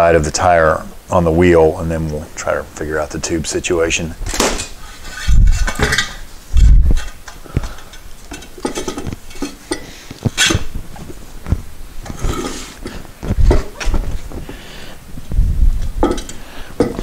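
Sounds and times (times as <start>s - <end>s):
heavy low thumps: 6.6s - 7.0s, 13.2s - 16.2s.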